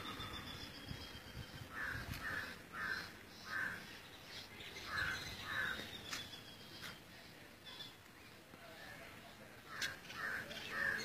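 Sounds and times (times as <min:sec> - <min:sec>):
harsh cawing animal calls: 0:01.7 - 0:04.0, 0:04.9 - 0:05.9, 0:09.7 - 0:11.0.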